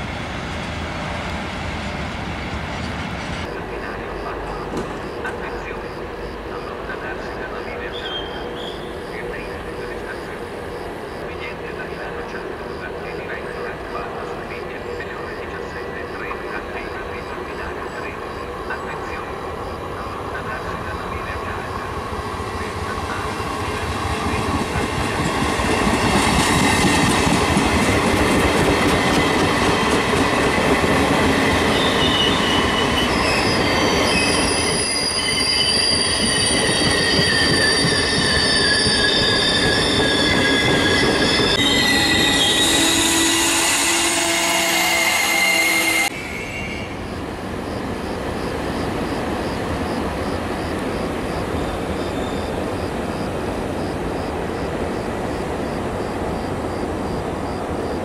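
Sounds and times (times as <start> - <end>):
train wheels rumbling on rails: 17.6 - 43.6
high-pitched wheel squeal: 31.7 - 47.1.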